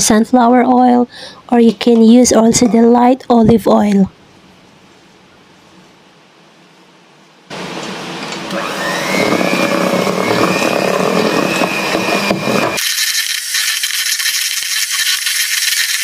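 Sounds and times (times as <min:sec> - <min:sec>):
electric hand mixer whirring: 0:08.5 - 0:16.0.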